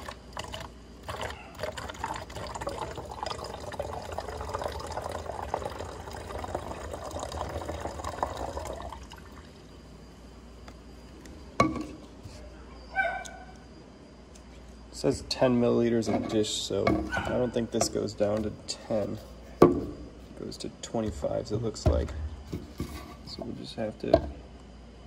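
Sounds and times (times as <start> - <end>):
water pouring into plastic bottle: 0.0 - 9.6.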